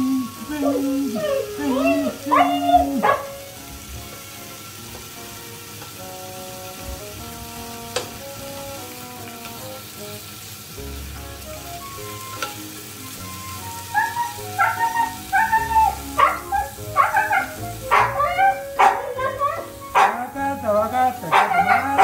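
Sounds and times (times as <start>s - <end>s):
dog whining: 0.0s - 3.5s, 13.3s - 20.4s, 21.2s - 22.0s
background music: 0.0s - 22.0s
meat sizzling on a grill: 0.0s - 22.0s
tongs clicking: 12.3s - 12.6s.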